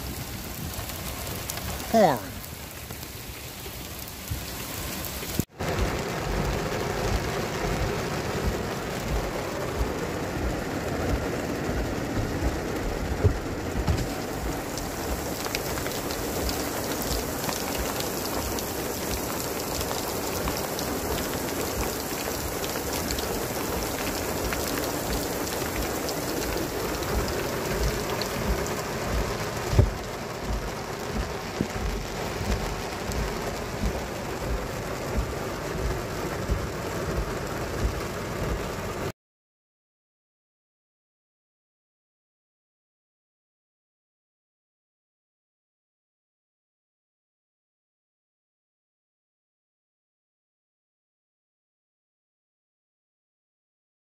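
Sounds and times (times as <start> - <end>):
heavy rain on a car: 0.0 - 39.1.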